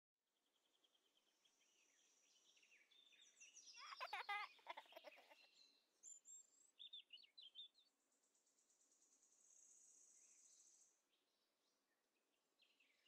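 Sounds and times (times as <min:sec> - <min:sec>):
birds chirping: 0:00.9 - 0:07.9.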